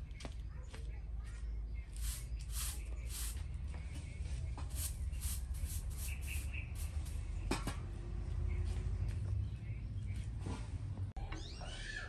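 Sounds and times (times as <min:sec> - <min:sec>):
bird chirps: 0:05.0 - 0:07.5.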